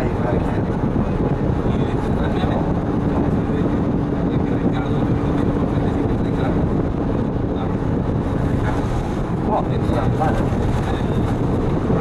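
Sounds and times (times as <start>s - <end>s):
bus engine and road noise: 0.0s - 12.0s.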